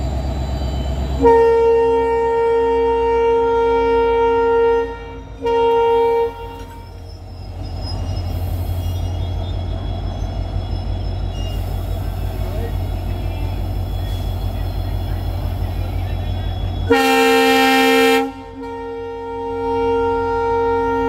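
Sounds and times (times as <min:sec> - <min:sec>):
low rumble of train: 0:00.0 - 0:21.0
locomotive horn blasts: 0:01.2 - 0:07.0, 0:16.8 - 0:21.0.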